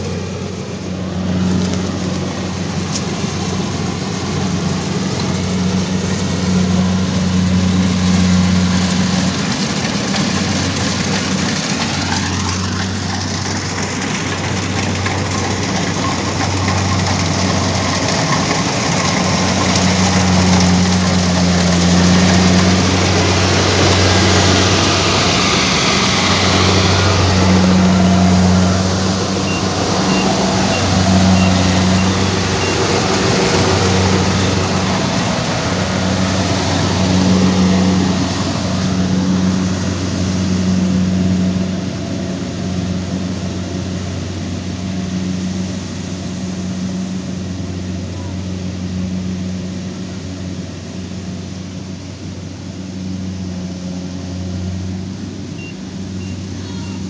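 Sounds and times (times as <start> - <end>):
threshing works rattling: 0.0 - 52.3
combine harvester diesel engine: 0.0 - 57.0.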